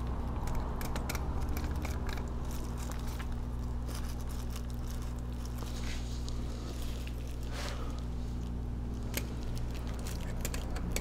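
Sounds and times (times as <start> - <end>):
clicks and scrapes of wire: 0.0 - 11.0
steady low hum: 0.0 - 11.0.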